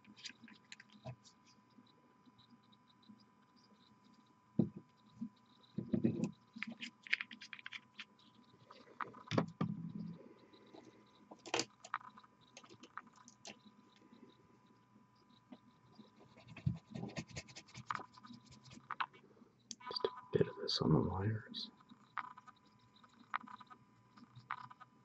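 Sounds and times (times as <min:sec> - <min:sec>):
small clicks and taps: 0:04.6 - 0:14.0
faint high whine: 0:08.1 - 0:25.0.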